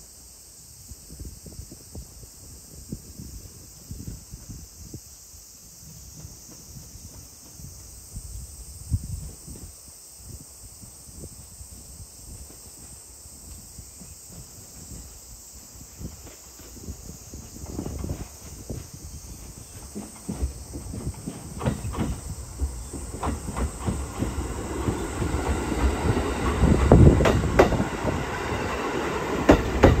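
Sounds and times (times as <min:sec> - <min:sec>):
insect chirring: 0:00.0 - 0:30.0
train wheels and running gear: 0:05.4 - 0:09.8, 0:11.7 - 0:30.0.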